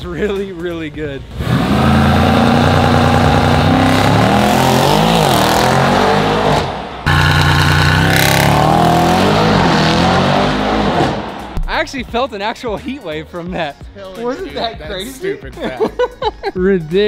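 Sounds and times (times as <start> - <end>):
car engine revving hard: 1.3 - 11.5.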